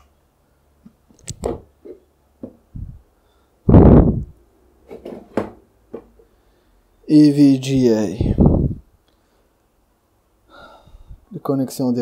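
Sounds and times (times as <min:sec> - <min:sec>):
box handling clicks and knocks: 0:04.9 - 0:06.2.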